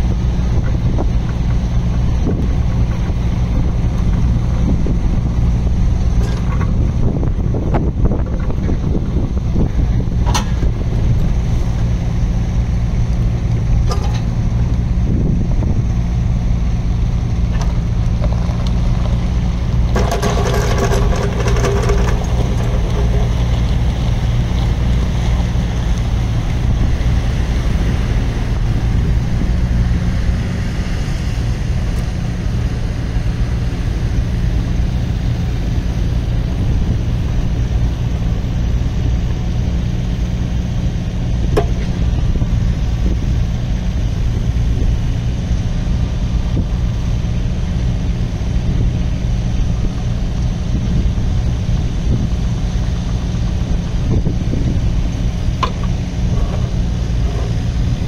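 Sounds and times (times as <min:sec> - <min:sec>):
excavator diesel engine running: 0:00.0 - 0:58.0
hydraulic whine: 0:19.6 - 0:25.6.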